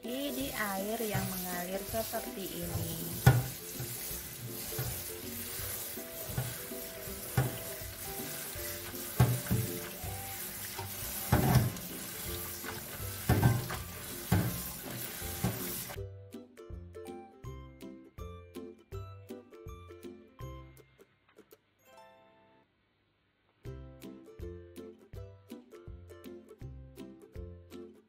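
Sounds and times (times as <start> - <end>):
light background music: 0.0 - 22.6, 23.6 - 28.0
hands rubbing wet leaves: 0.2 - 16.0
tap water running into a bowl: 0.2 - 16.0.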